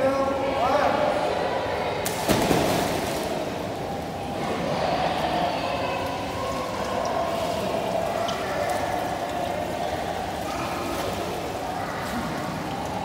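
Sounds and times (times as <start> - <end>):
water moving: 1.1 - 13.0
loud splash into pool: 2.0 - 3.7.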